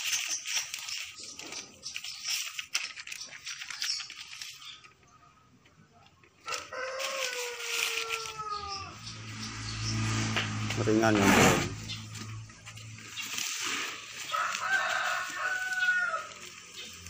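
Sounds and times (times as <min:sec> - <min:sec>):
crackly rustling: 0:00.0 - 0:10.8, 0:11.7 - 0:17.0
rooster crowing: 0:06.4 - 0:09.1, 0:14.2 - 0:16.5.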